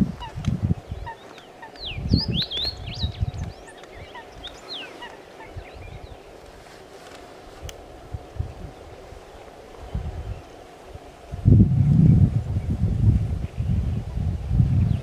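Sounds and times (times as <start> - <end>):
wind rumble on microphone: 0.0 - 15.0
bird singing whistles: 1.8 - 4.9.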